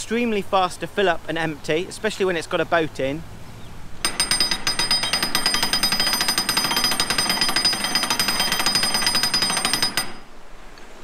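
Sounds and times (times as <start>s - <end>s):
ratchet clicking: 4.1s - 10.3s.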